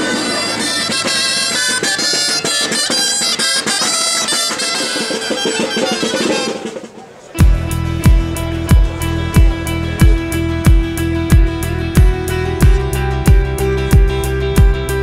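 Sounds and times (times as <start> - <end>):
drum beating: 0.0 - 15.0
shawm playing folk tune: 0.0 - 15.0.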